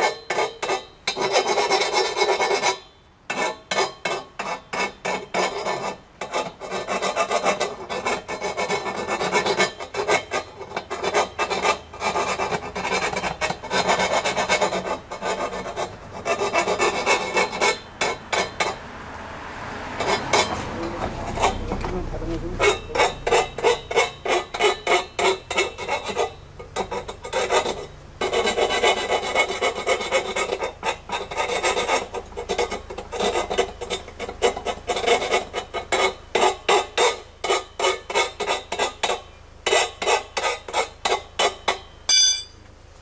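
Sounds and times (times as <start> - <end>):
file rasping on metal tube: 0.0 - 18.8, 19.8 - 42.2
short metallic ring: 41.7 - 42.7.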